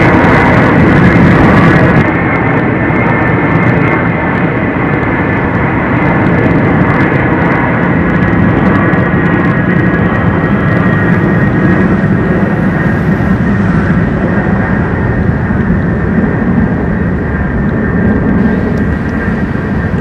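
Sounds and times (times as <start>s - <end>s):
jet engines roaring overhead: 0.0s - 20.0s.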